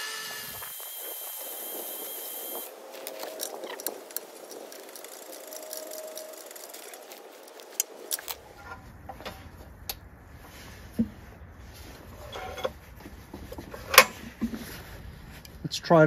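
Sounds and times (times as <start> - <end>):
drill spinning wire brush: 0.0 - 8.4
hands handling engine parts: 2.8 - 11.2.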